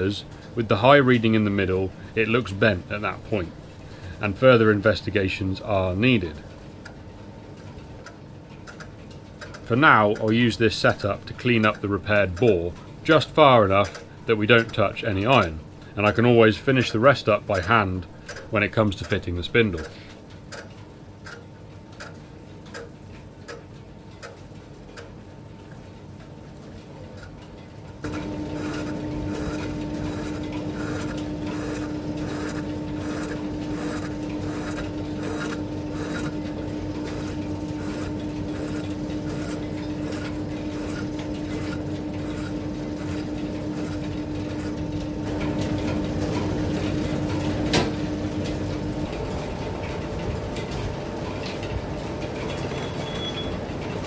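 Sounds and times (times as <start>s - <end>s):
regular ticking: 5.6s - 52.6s
lathe humming: 28.0s - 54.0s.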